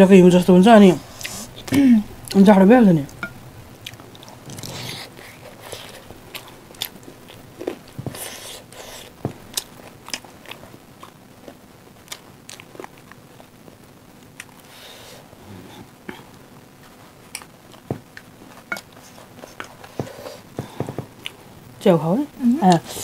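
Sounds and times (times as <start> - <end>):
mouth clicks and smacks: 17.3 - 18.9.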